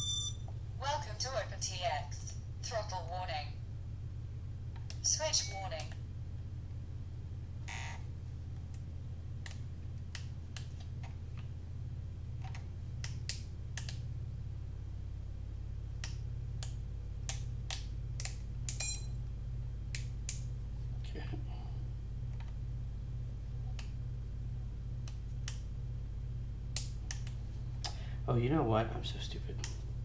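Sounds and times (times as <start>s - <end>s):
short buzzy beep: 0.0s - 0.5s, 5.3s - 5.9s, 18.8s - 19.2s
steady low hum: 0.0s - 30.0s.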